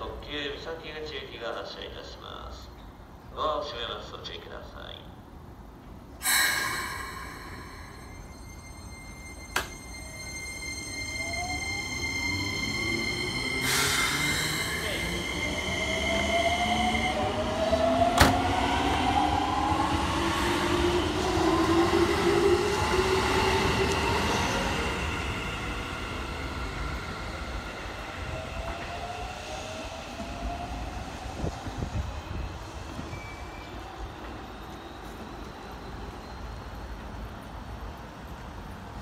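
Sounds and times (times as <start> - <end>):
burst of hiss: 6.2 - 8.0
steady high tone: 6.2 - 28.6.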